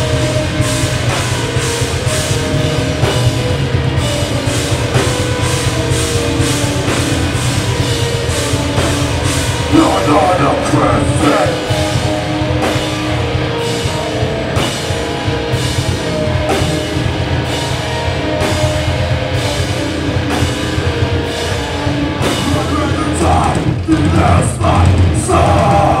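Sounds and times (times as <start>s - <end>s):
heavy rock band playing: 0.0s - 26.0s
rock vocals: 0.0s - 26.0s.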